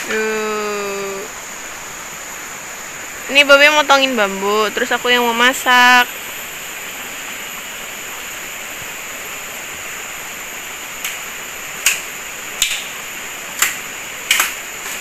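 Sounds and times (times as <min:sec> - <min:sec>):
river water rushing: 0:00.0 - 0:15.0
sharp knocks cutting bamboo: 0:11.8 - 0:13.0, 0:13.6 - 0:15.0.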